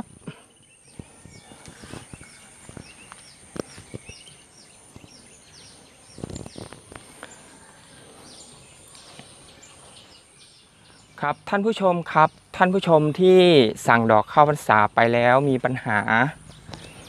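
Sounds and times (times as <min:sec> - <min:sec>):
bird chirping: 0:00.0 - 0:17.0
high insect drone: 0:00.0 - 0:17.0
footsteps crunching: 0:00.9 - 0:05.4.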